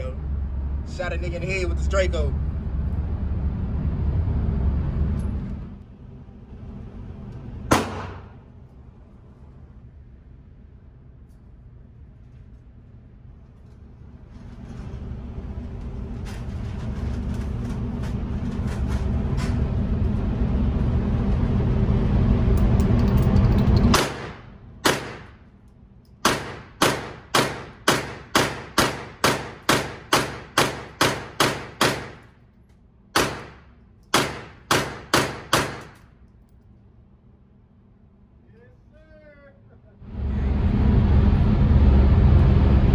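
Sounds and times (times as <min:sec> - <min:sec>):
low rumble: 0:00.0 - 0:26.6, 0:39.8 - 0:42.9
pistol shots echoing indoors: 0:07.7 - 0:08.3, 0:24.0 - 0:25.5, 0:26.2 - 0:32.3, 0:33.1 - 0:36.1.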